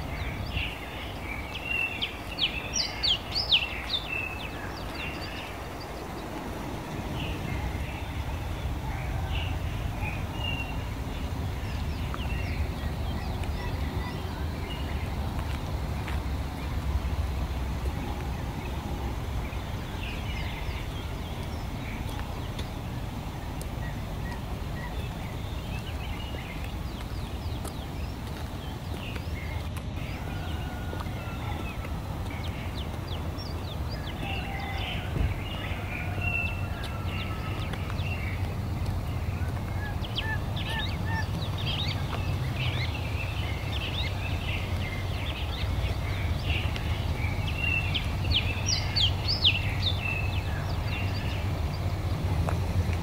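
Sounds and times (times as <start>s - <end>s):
birds chirping: 0.0s - 53.0s
steady low rumble: 0.0s - 53.0s.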